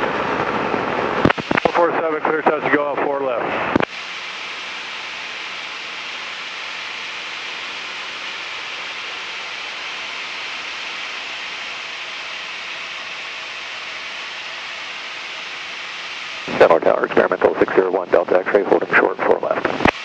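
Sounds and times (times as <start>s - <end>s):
faint aircraft engine hum: 0.0s - 20.0s
headset intercom hiss: 1.2s - 3.1s, 14.8s - 20.0s.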